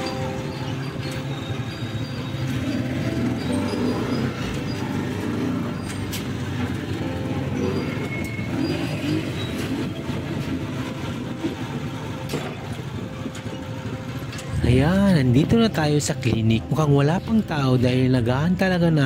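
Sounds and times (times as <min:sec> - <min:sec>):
vehicle engine and road rumble: 0:00.0 - 0:19.0.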